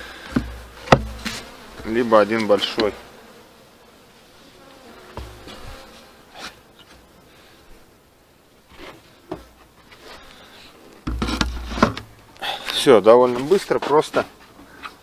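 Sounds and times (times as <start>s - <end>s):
hive lid thumping down: 0.3s - 3.0s, 5.1s - 5.9s, 11.0s - 12.1s.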